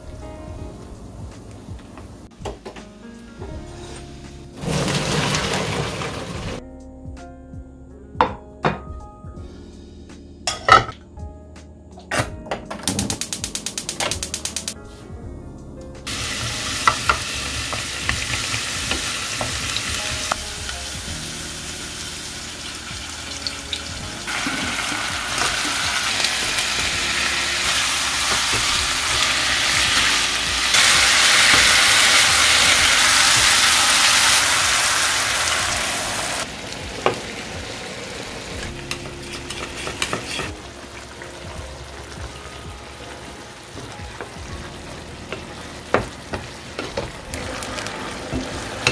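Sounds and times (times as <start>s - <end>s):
food sizzling in a frying pan: 16.1s - 48.9s.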